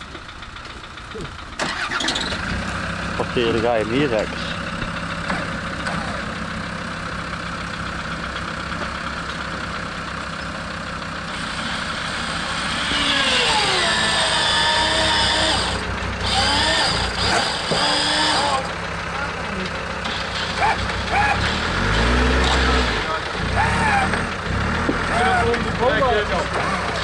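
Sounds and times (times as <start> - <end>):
vehicle engine idling: 0.0 - 27.0
electric winch whining: 1.6 - 2.4, 11.2 - 18.8.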